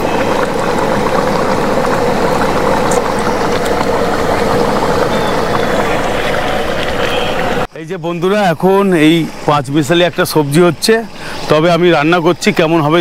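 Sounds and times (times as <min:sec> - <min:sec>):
pot of curry bubbling: 0:00.0 - 0:13.0.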